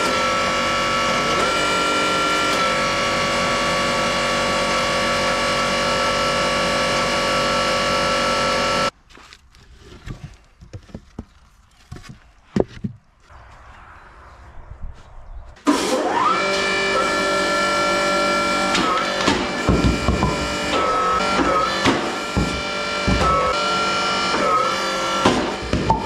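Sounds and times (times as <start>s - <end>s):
hydraulic pump whining: 0.0s - 8.9s, 15.6s - 26.0s.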